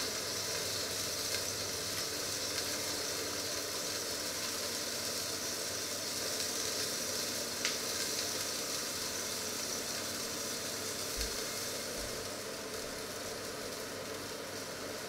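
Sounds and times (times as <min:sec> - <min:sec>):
fat hissing in a frying pan: 0:00.0 - 0:15.0.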